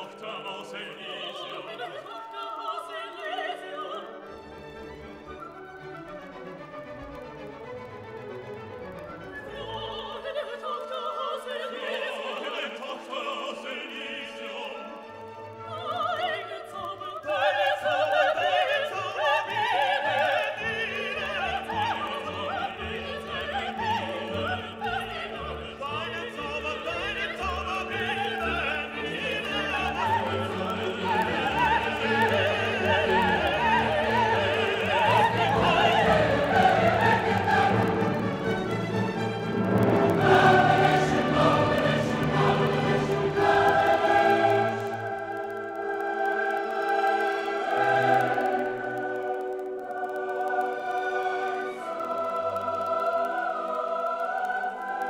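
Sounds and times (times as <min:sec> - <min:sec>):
operatic singing: 0:00.0 - 0:06.7, 0:08.8 - 0:55.0
orchestra playing: 0:03.7 - 0:10.4, 0:21.2 - 0:46.0.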